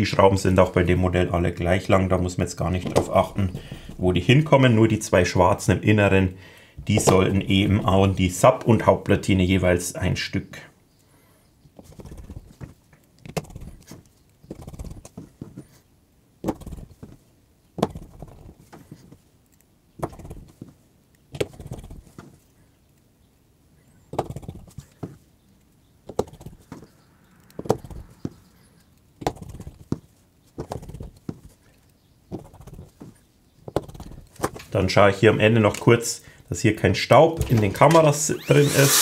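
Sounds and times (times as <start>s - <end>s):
small screws being driven: 37.4s - 39.0s.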